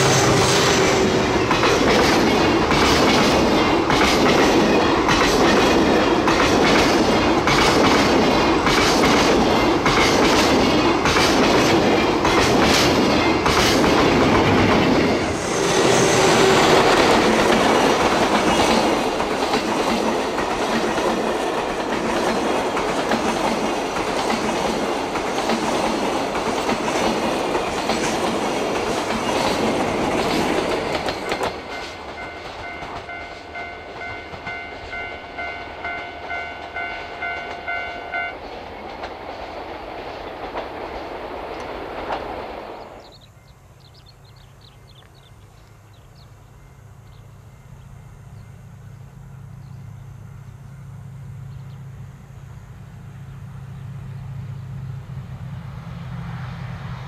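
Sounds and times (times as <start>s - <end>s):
train wheels clattering: 0.0s - 42.4s.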